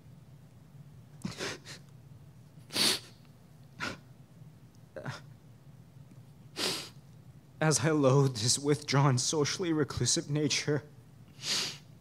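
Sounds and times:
man sniffing and breathing: 2.7s - 3.1s, 6.6s - 7.0s, 11.3s - 11.9s.

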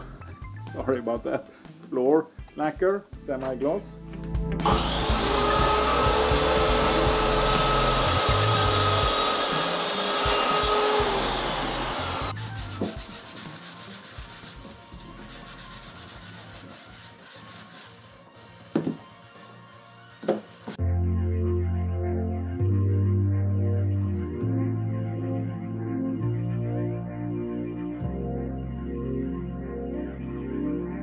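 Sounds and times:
miter saw cutting wood: 4.6s - 12.4s
sanding block scratching wood: 6.7s - 18.2s.

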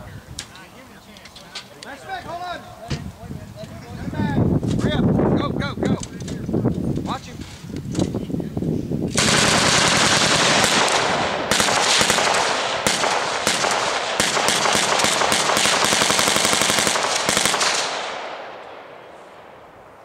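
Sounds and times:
machine guns firing: 9.1s - 18.6s.

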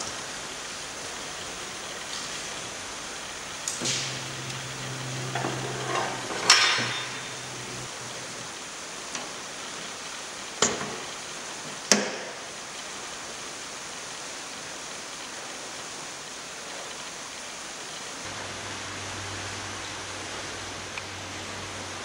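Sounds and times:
steady hiss: 0.0s - 22.0s
low hum: 3.7s - 8.5s, 18.3s - 22.0s.

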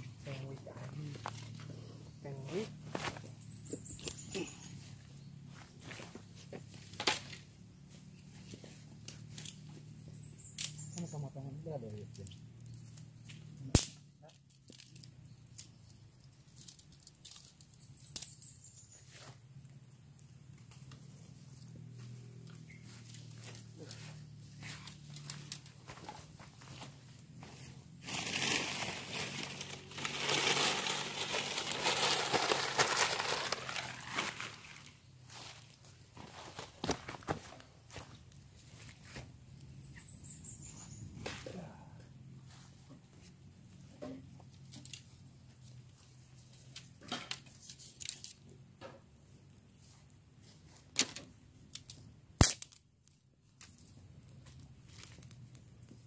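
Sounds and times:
loud crack of burning wood: 13.7s - 14.0s, 28.0s - 34.9s, 51.8s - 52.8s
dry leaves crinkling and rustling: 13.8s - 19.2s, 20.7s - 39.8s, 52.6s - 56.0s
fire crackling: 19.2s - 23.9s, 24.7s - 35.9s, 49.0s - 56.0s.

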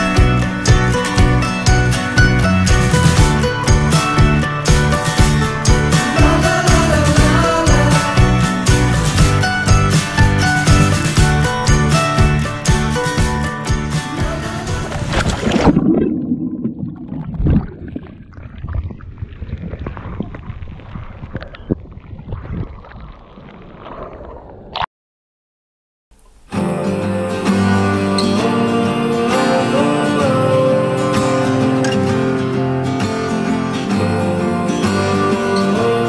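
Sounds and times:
acoustic guitar music: 0.0s - 15.8s, 26.5s - 36.0s
muffled water sloshing: 14.2s - 24.8s
small splashes: 14.8s - 24.4s.

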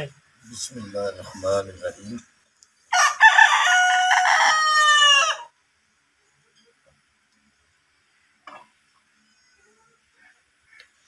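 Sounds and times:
rooster crowing: 2.9s - 5.6s.

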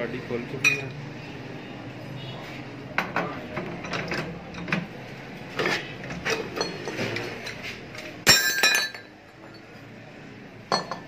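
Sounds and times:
metal clinks and knocks: 8.2s - 9.9s, 10.7s - 11.0s.

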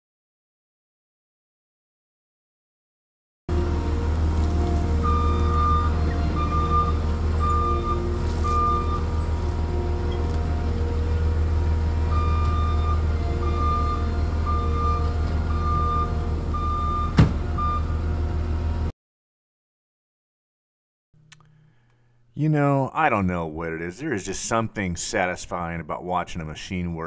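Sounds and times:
diesel engine running: 3.5s - 18.9s
reversing alarm beeping: 4.5s - 10.4s, 11.8s - 18.1s.

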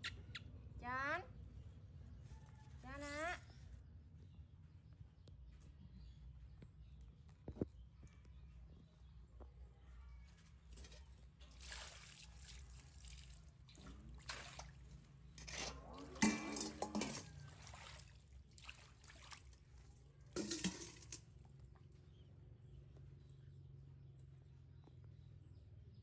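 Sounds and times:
water splashing from a metal pot: 10.7s - 21.3s.

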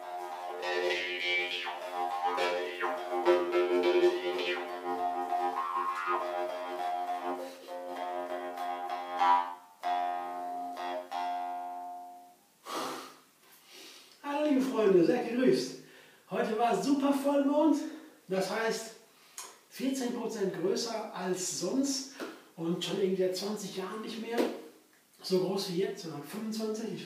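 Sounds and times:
jaw harp twanging: 0.3s - 7.3s.

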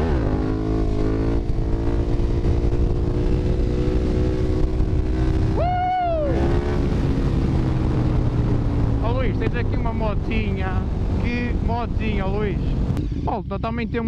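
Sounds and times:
motorcycle engine at speed: 0.0s - 13.0s
rider yelling: 5.5s - 6.6s.

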